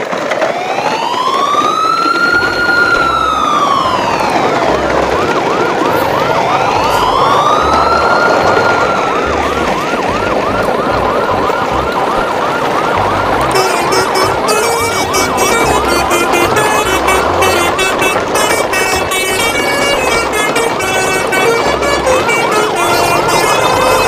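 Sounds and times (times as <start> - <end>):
siren wailing: 0.0 - 24.0
yelping siren chirp: 0.1 - 24.0.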